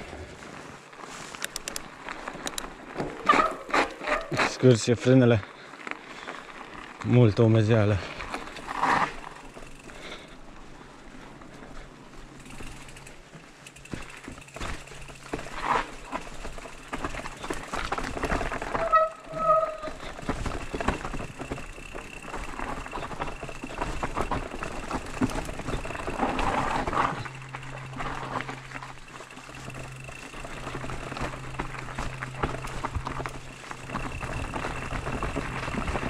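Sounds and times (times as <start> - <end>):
bike frame clicks and knocks: 1.4 - 4.4, 8.3 - 10.2, 12.2 - 36.0
brakes squealing: 7.1 - 10.5, 11.9 - 36.0.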